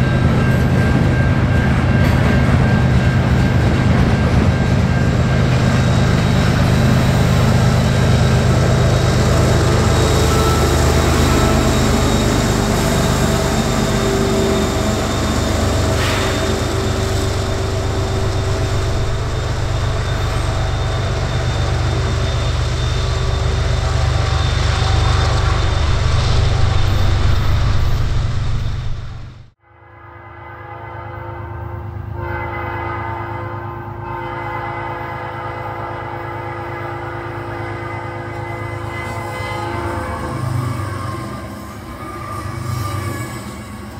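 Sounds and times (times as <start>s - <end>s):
train wheels rumbling on rails: 0.0s - 29.6s, 32.5s - 43.9s
diesel locomotive drone: 0.0s - 43.9s.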